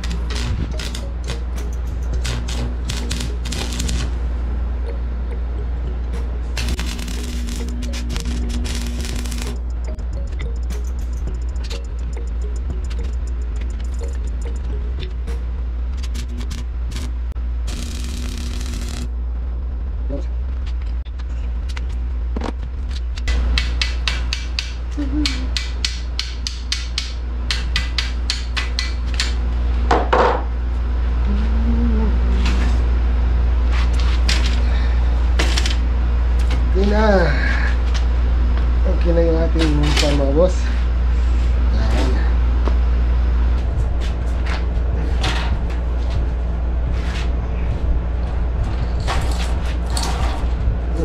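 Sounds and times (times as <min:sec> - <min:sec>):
low rumble: 0:00.0 - 0:23.4, 0:40.6 - 0:51.0
steady low hum: 0:00.0 - 0:51.0
hammer tapping on steel frame: 0:23.3 - 0:29.4.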